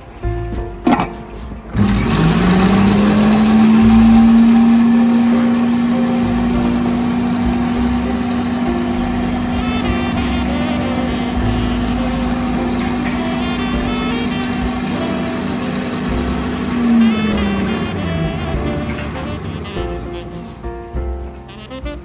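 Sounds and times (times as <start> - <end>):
food processor motor hum: 1.8 - 7.4.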